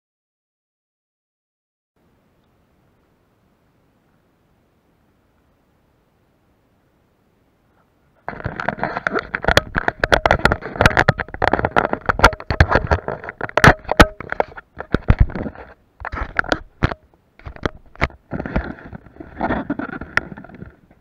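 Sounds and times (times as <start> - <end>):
camera handling scrapes and clicks: 8.2 - 20.8.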